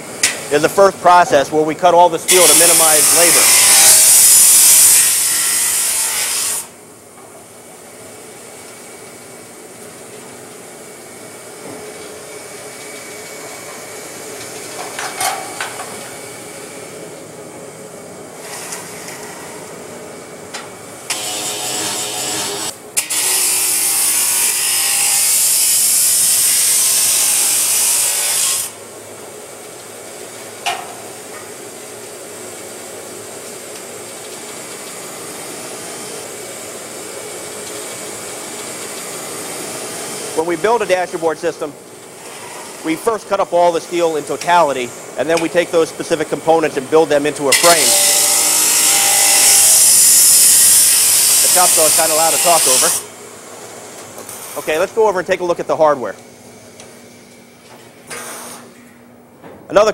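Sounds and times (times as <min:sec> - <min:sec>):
saw and dust collector running: 0:00.0 - 0:06.8, 0:21.0 - 0:28.8, 0:34.9 - 0:53.2
chop saw grinding through steel: 0:02.3 - 0:06.7, 0:21.1 - 0:28.7, 0:47.5 - 0:53.0.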